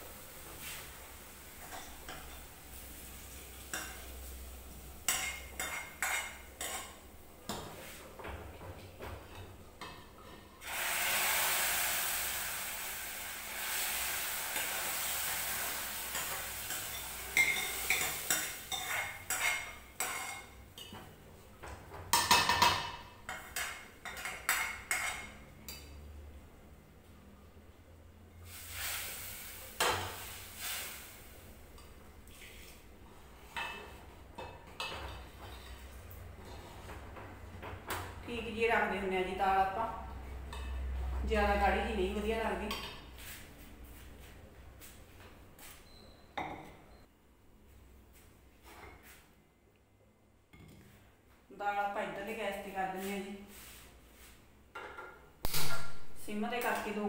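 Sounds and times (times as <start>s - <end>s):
oil sizzling in a pot: 0.0s - 7.0s, 10.6s - 20.6s, 28.4s - 32.8s
spoon scraping steel bowl: 16.1s - 20.5s.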